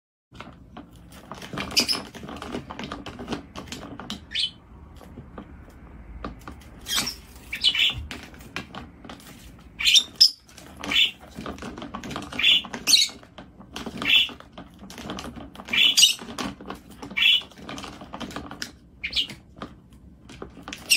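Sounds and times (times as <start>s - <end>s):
bird chirping: 4.2s - 4.6s, 6.8s - 8.2s, 9.8s - 11.4s, 12.2s - 13.2s, 13.9s - 14.4s, 15.6s - 16.4s, 17.0s - 17.6s, 19.0s - 19.4s.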